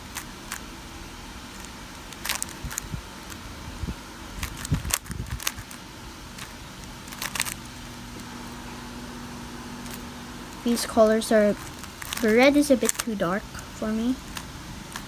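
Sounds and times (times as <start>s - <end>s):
plastic puzzle cube clicking: 7.1s - 7.6s, 12.9s - 13.1s.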